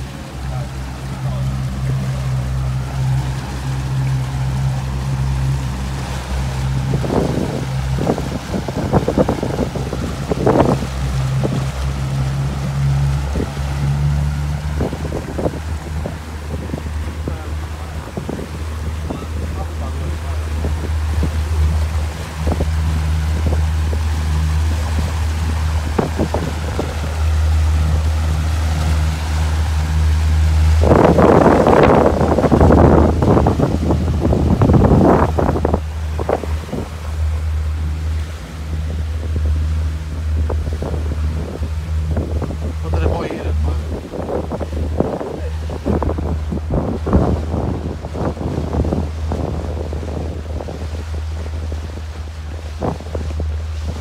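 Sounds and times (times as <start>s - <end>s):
motorboat engine humming: 0.0s - 54.0s
water rushing past hull: 0.0s - 54.0s
wind on microphone: 0.0s - 54.0s.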